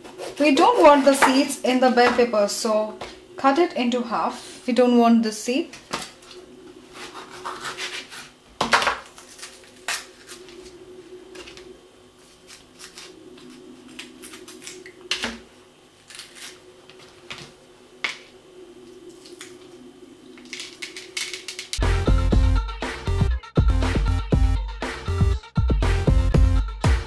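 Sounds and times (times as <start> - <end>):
steady low hum: 0.0 - 23.2.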